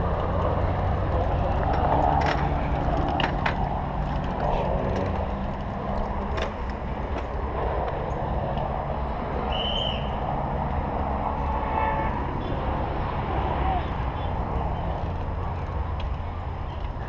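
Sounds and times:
road noise: 0.0 - 17.0
vehicle engine hum: 0.0 - 17.0.

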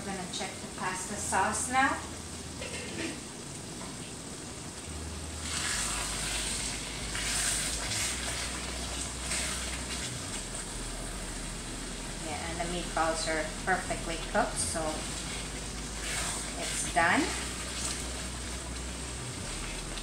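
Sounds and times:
sauce sizzling and bubbling: 0.0 - 20.0
wooden spatula scraping skillet: 5.4 - 10.6, 14.8 - 18.6.

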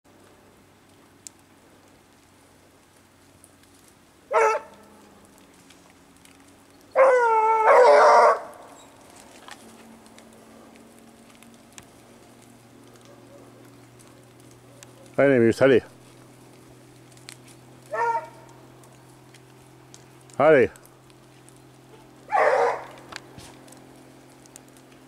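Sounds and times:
dog yelping and crying: 4.3 - 4.7, 7.0 - 8.8, 17.9 - 18.5, 22.3 - 23.0.

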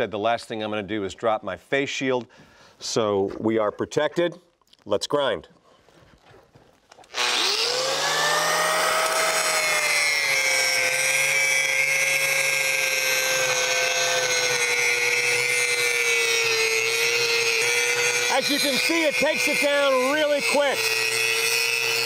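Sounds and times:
angle grinder motor whine: 7.1 - 22.0.

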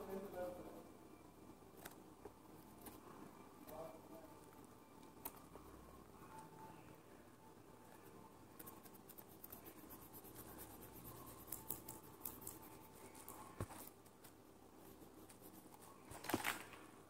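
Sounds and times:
pen scribbling on paper: 8.6 - 13.3, 14.8 - 15.8.

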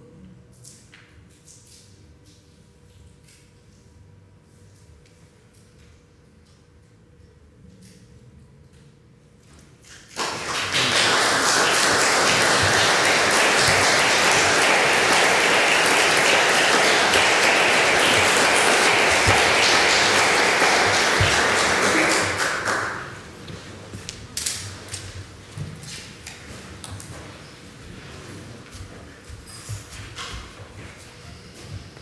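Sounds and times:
audience applauding: 10.1 - 23.3.

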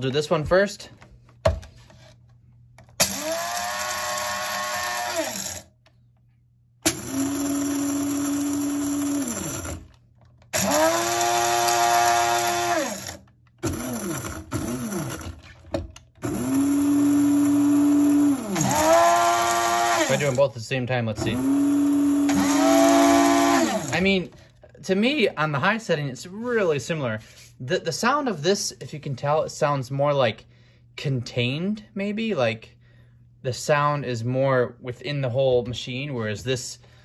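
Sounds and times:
coffee grinder whirring: 3.0 - 5.8, 6.8 - 15.6, 16.2 - 20.5, 21.2 - 24.1.

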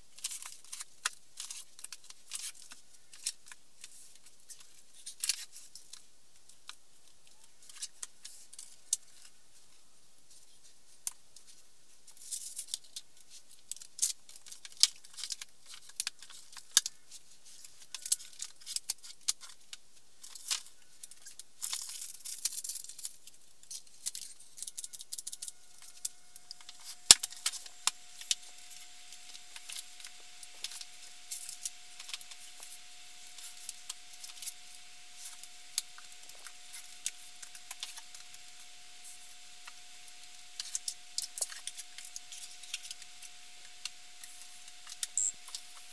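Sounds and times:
faint steady tone: 24.1 - 45.9.

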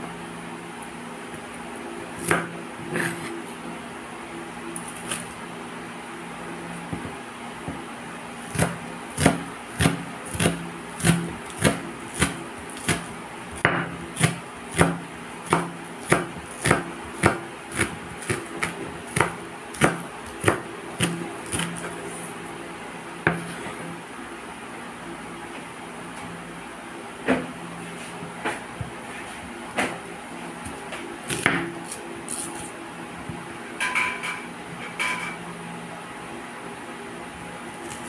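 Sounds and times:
knife chopping on wooden board: 2.2 - 3.4, 8.5 - 22.0, 23.2 - 23.8, 30.6 - 32.7.

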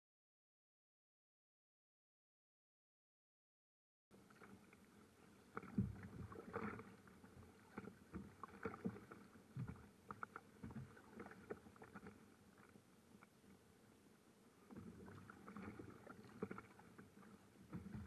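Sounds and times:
water slapping against kayak hull: 5.5 - 12.2, 14.7 - 18.0.

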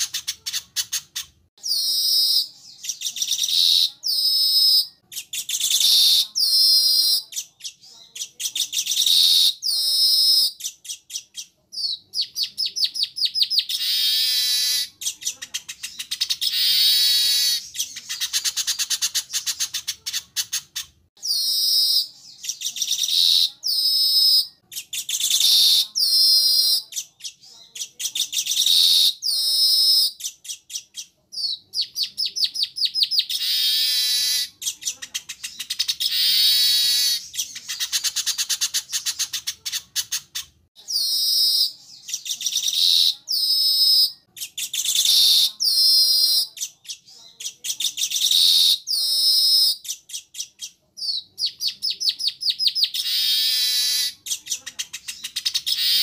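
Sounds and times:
bird chattering song: 0.0 - 56.0.

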